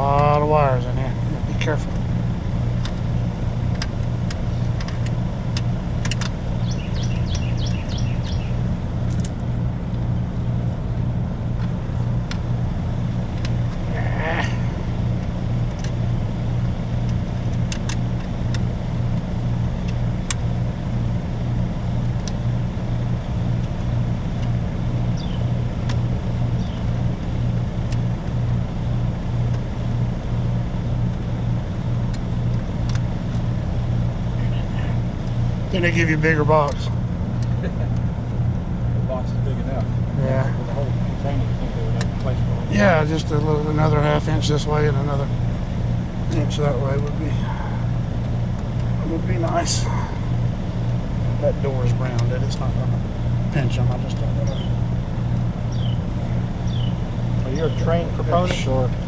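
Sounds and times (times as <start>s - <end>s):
heat pump humming: 0.0s - 59.0s
clicks of wires being handled: 2.8s - 6.4s, 9.0s - 10.0s, 16.6s - 20.5s.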